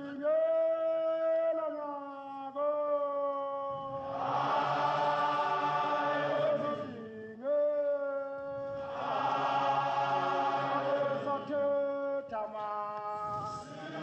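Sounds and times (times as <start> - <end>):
voices chanting long held notes: 3.7 - 7.2, 8.6 - 11.9, 13.2 - 14.0.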